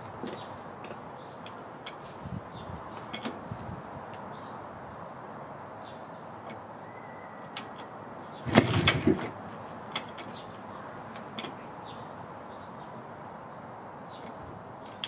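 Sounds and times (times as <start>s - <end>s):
motorcycle kickstart clattering: 8.5s - 9.4s.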